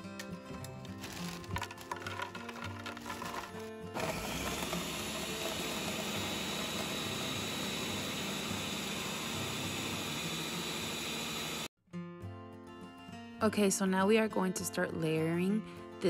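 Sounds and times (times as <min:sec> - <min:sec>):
blender grinding: 0:01.0 - 0:11.7.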